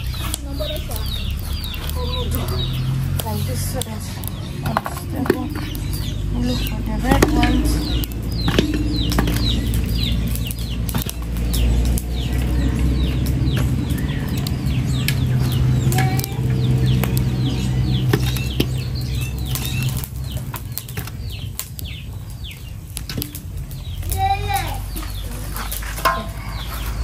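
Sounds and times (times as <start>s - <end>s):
birds chirping: 0.0s - 27.0s.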